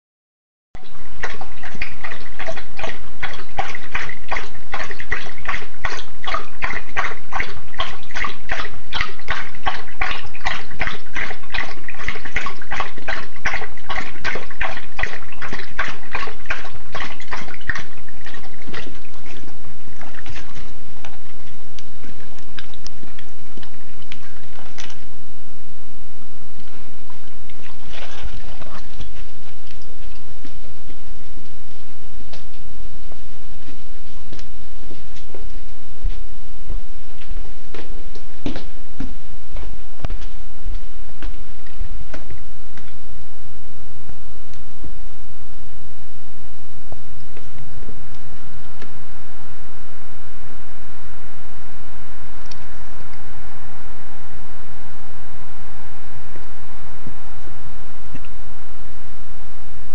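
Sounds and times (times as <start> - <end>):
dog lapping water from bowl: 0.8 - 25.2, 26.6 - 31.3, 37.2 - 43.0.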